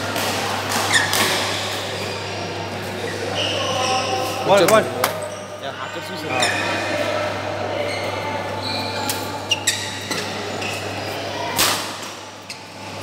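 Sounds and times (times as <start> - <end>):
shoes squeaking on court floor: 0.8 - 2.2, 3.0 - 5.6, 6.3 - 6.8, 7.8 - 11.5, 12.4 - 13.0.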